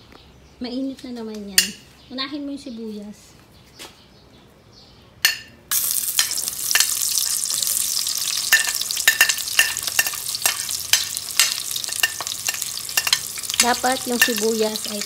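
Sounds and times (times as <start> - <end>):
onions sizzling in hot oil: 5.7 - 15.0
metal spoon scraping pot: 8.5 - 15.0.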